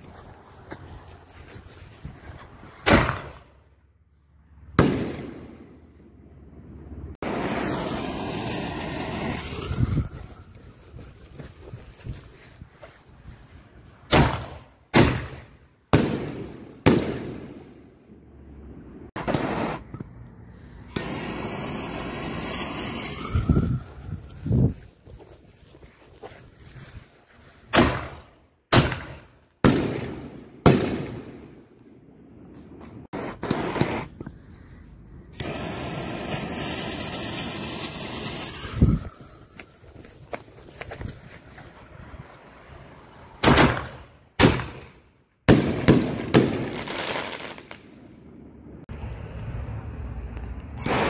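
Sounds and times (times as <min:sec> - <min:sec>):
crackling firework trail: 0:00.0 - 0:51.0
firework bangs: 0:02.7 - 0:03.6, 0:04.7 - 0:06.0, 0:07.2 - 0:10.4, 0:14.1 - 0:17.9, 0:19.1 - 0:20.0, 0:20.8 - 0:24.0, 0:27.7 - 0:31.7, 0:33.1 - 0:34.2, 0:43.4 - 0:48.0, 0:50.8 - 0:51.0
firework crackling: 0:07.2 - 0:11.3, 0:19.1 - 0:20.0, 0:20.7 - 0:24.3, 0:33.1 - 0:34.2, 0:35.3 - 0:39.5, 0:45.5 - 0:48.0, 0:50.8 - 0:51.0.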